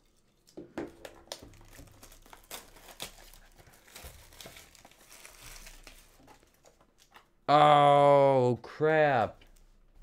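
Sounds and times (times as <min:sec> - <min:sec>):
plastic wrapping crinkling and tearing: 0:00.0 - 0:07.3.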